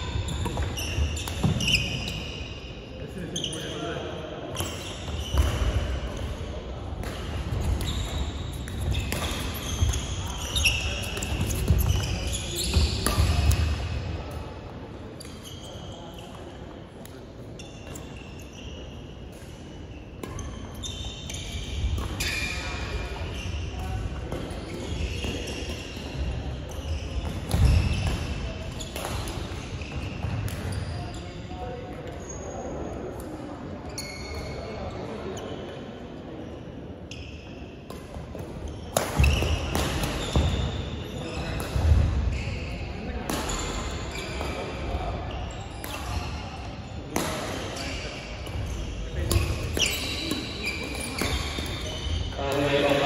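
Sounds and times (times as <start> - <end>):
shoes squeaking: 0.1 - 2.7, 7.6 - 13.6, 17.6 - 18.9, 43.4 - 52.3
racket hitting shuttlecock: 7.0 - 10.0, 37.9 - 40.7, 47.1 - 47.8.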